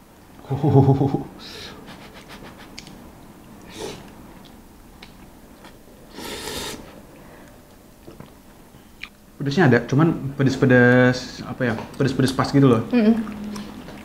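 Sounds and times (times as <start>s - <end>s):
wet chewing clicks: 2.0s - 5.8s
noodles being slurped: 6.1s - 7.0s.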